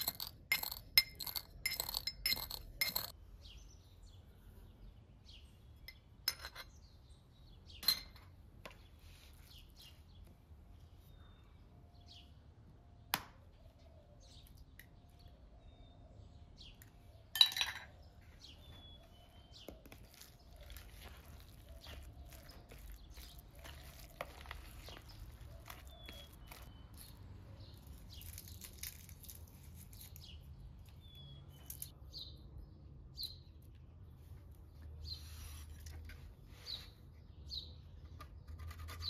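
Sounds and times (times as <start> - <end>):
birds chirping: 0.0 - 28.9, 29.9 - 39.0
spoon stirring in bowl: 20.0 - 26.6.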